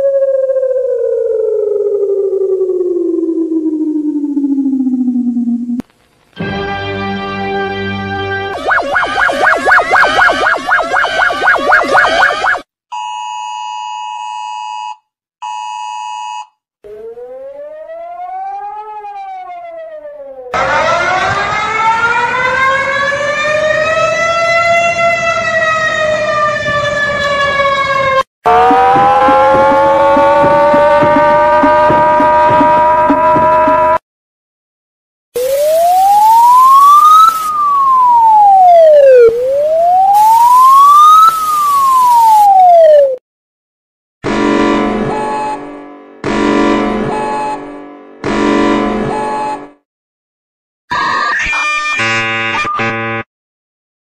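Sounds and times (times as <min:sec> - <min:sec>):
warning siren wail: 0:00.0 - 0:05.8, 0:08.5 - 0:12.7, 0:16.8 - 0:34.0, 0:35.4 - 0:43.2, 0:50.9 - 0:53.2
phone two-tone alarm: 0:08.6 - 0:16.6, 0:45.1 - 0:45.7, 0:47.1 - 0:47.6, 0:49.1 - 0:49.7, 0:51.6 - 0:53.2.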